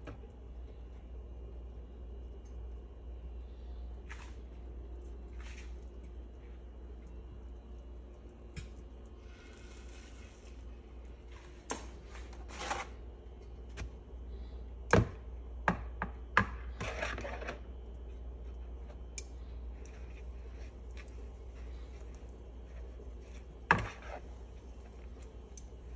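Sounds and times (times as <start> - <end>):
tongs clicking and knocking: 19.1 - 21.2, 25.2 - 25.8.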